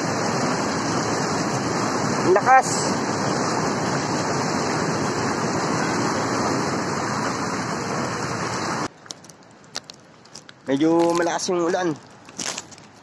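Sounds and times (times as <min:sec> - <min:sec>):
water rushing over a weir: 0:00.0 - 0:08.9.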